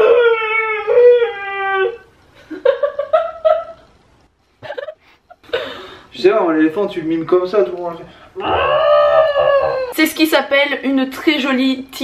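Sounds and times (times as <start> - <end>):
woman laughing: 4.6 - 5.8.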